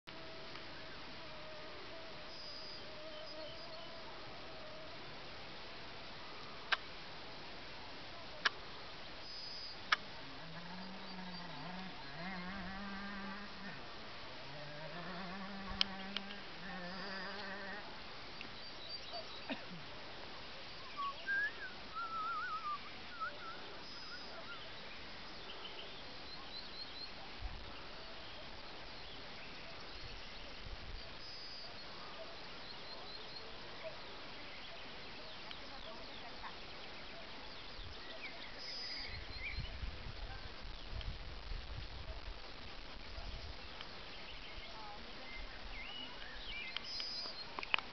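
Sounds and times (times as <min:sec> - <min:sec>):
steady background hiss: 0:00.1 - 0:47.9
insect buzzing: 0:09.3 - 0:13.8, 0:14.4 - 0:17.9.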